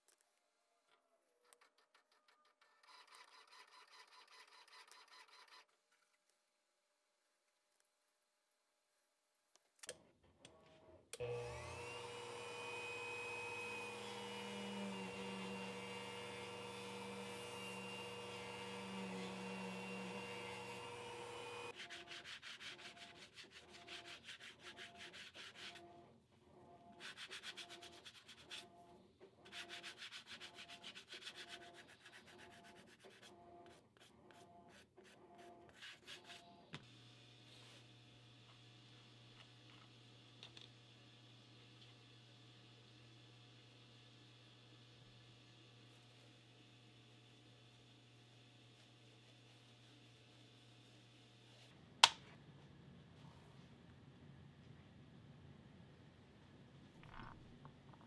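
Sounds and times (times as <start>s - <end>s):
sanding block rubbing leather: 21.5s - 25.8s, 27.0s - 28.7s, 29.5s - 33.0s
low hum with thin whine: 37.4s - 58.0s.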